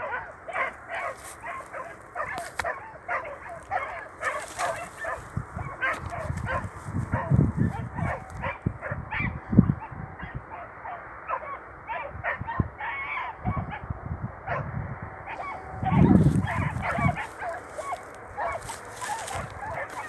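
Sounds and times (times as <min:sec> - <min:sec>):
low rumbling noise: 0:12.6 - 0:20.0.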